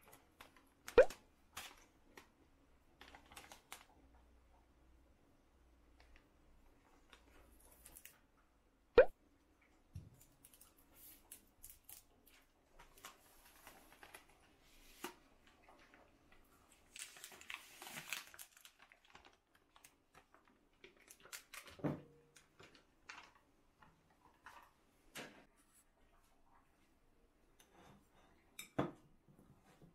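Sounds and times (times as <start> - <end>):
plastic wrapper crinkling and tearing: 3.0 - 3.9, 16.8 - 21.8.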